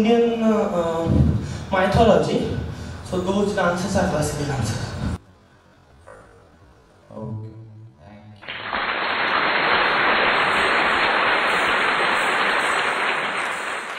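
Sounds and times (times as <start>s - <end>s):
audience applauding: 8.4s - 13.9s.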